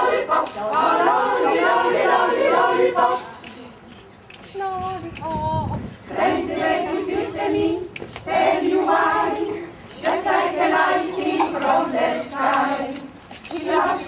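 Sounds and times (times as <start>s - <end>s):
mixed choir singing: 0.0s - 3.8s, 6.1s - 14.0s.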